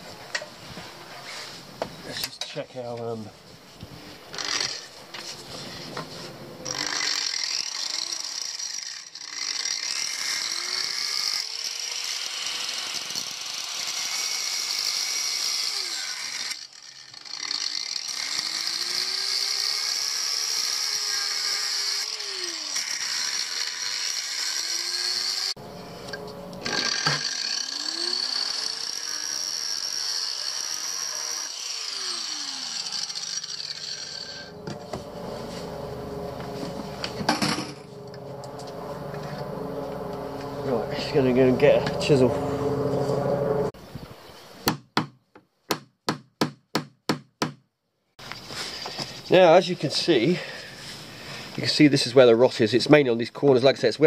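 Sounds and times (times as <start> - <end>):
power tool motor whine: 5.7 - 43.7.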